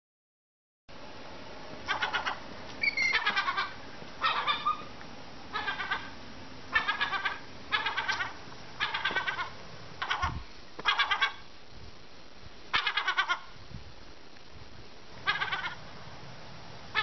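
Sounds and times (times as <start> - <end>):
gull chick cheeping: 1.8 - 4.9, 5.5 - 11.4, 12.7 - 13.5, 15.2 - 15.8.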